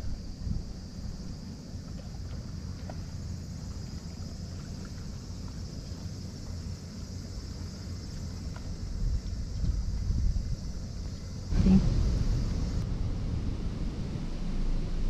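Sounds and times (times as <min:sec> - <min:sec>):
wind rumbling on microphone: 0:00.0 - 0:02.6, 0:08.0 - 0:15.0
insects chirring: 0:00.0 - 0:15.0.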